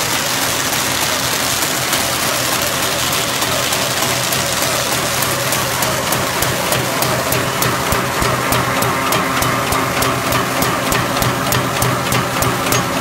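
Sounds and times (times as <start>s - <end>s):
machine rollers whirring: 0.0s - 13.0s
low hum: 6.9s - 12.4s.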